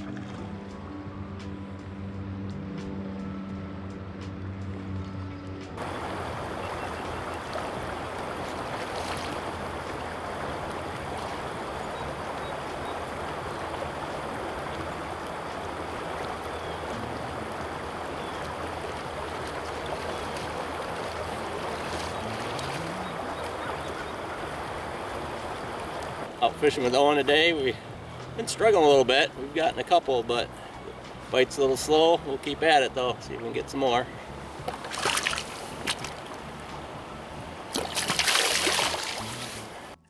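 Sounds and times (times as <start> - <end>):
river rushing over gravel: 5.8 - 27.8, 31.2 - 40.0.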